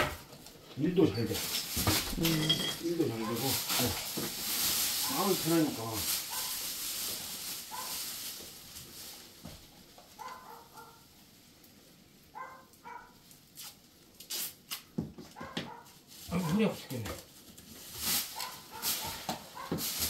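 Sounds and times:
plastic sheeting rustling: 0.8 - 20.0
tape ripping: 3.2 - 9.3, 13.3 - 15.0, 17.0 - 20.0
tape pulled off roll squeaking: 13.6 - 15.0.

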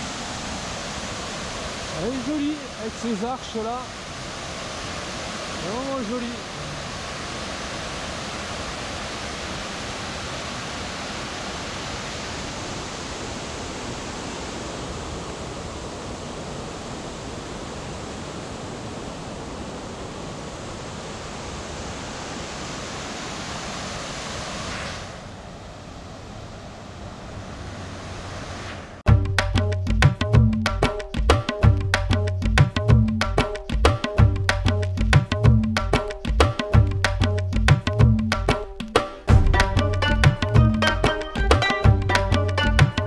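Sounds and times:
water rushing over weir: 0.0 - 29.0.

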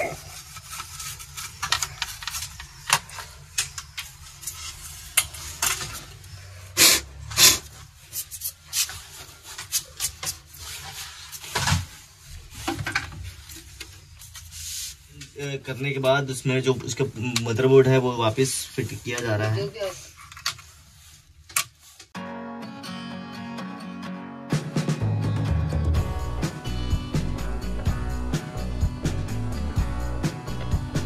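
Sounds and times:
plastic parts handled and clicking: 0.6 - 6.2.

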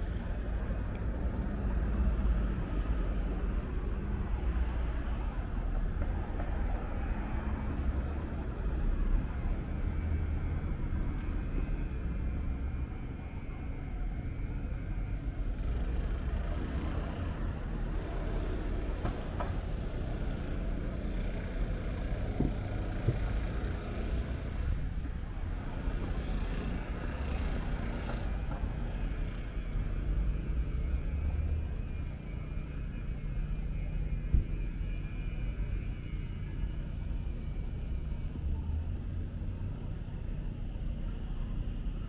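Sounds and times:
cars driving past: 15.0 - 34.6.

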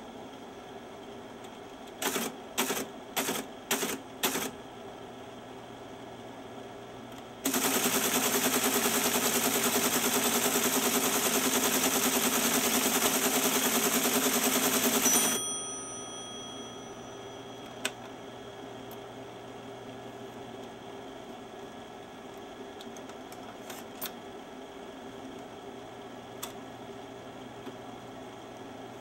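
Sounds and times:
teletype clacking: 1.9 - 4.5, 7.4 - 15.4.

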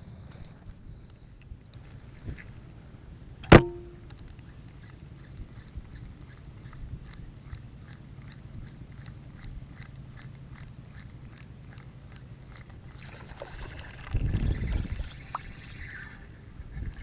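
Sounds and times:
fishing reel ticking: 3.7 - 17.0
low wind rumble: 13.5 - 17.0.

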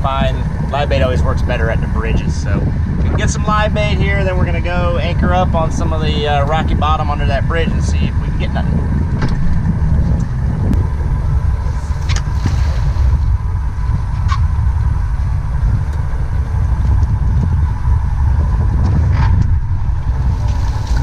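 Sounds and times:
faint steady whine: 0.0 - 21.0
wind buffeting microphone: 0.0 - 21.0.

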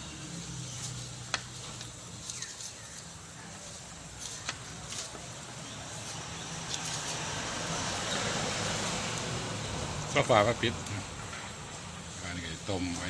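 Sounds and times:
dough frying in oil: 0.0 - 12.8.

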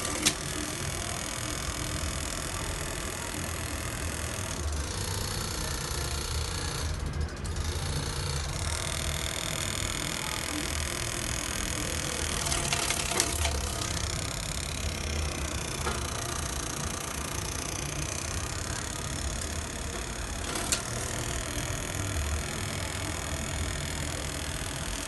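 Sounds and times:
low mechanical hum: 0.0 - 25.0
clicks and rattling: 12.0 - 14.4, 19.0 - 21.3.

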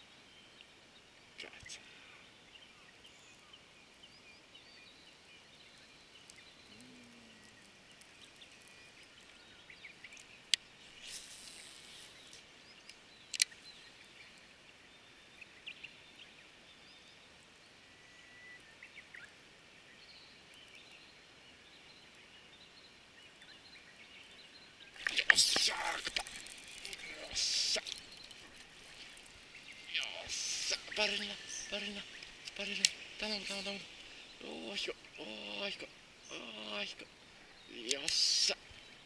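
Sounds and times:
faint bird calls: 4.7 - 14.4, 24.6 - 39.0
brief hiss: 10.9 - 12.3
sharp clicks: 12.8 - 13.6, 32.2 - 33.6, 37.8 - 38.5.

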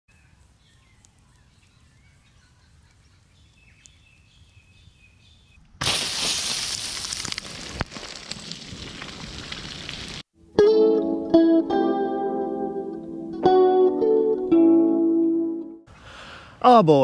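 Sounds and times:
guitar music: 10.4 - 15.9.

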